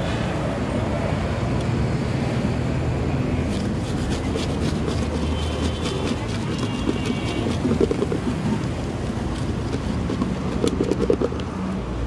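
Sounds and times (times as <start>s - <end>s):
street traffic rumble: 0.0s - 12.0s
food tossed in plastic bucket: 3.5s - 11.4s.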